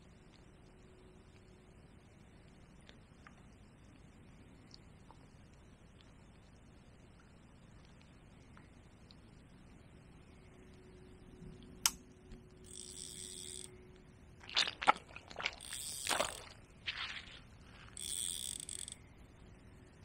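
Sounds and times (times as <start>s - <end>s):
fishing reel whirring: 12.6s - 13.7s, 15.6s - 16.6s, 17.8s - 19.0s
rustling handling noise: 14.4s - 18.9s.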